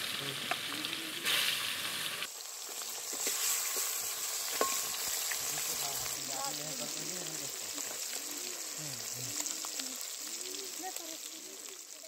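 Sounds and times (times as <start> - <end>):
fish sizzling in hot oil: 0.0 - 12.0
metal spatula clinking on pan: 4.5 - 5.0.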